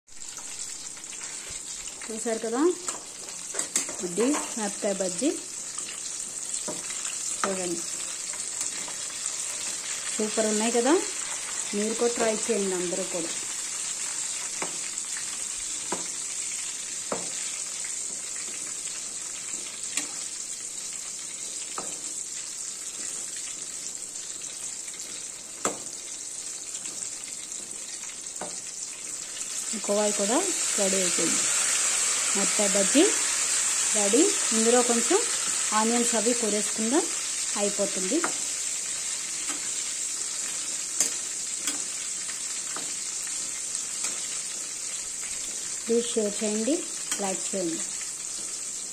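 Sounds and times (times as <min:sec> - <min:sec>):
deep-frying sizzle in oil: 0:00.1 - 0:48.9
metal spatula clicking on pan: 0:39.4 - 0:39.7, 0:41.0 - 0:41.9.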